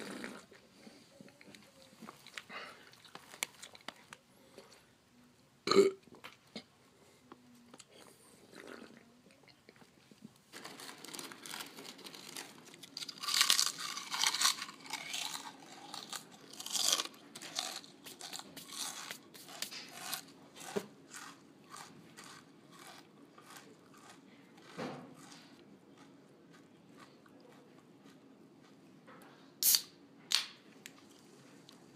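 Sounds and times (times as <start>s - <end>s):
person chewing crunchy food: 0.0s - 4.8s, 10.6s - 28.9s.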